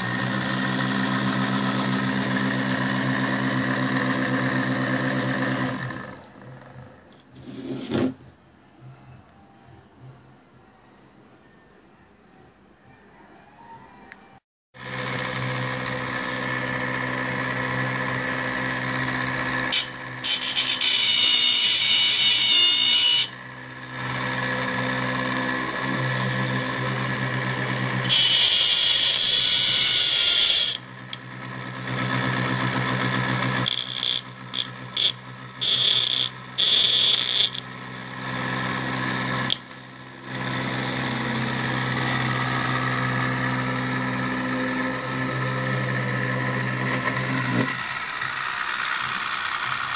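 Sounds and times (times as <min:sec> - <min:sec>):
electric motor humming: 0:00.0 - 0:07.5, 0:14.8 - 0:49.9
plastic strip scraping spinning coupling: 0:33.6 - 0:37.8.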